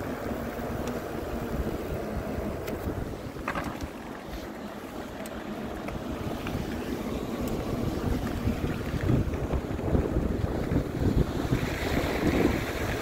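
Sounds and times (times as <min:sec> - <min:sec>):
wind buffeting microphone: 0:01.4 - 0:04.4, 0:05.7 - 0:13.0.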